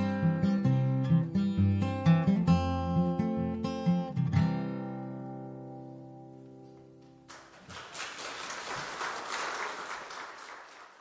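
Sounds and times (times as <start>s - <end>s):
audience applause: 7.3s - 11.0s.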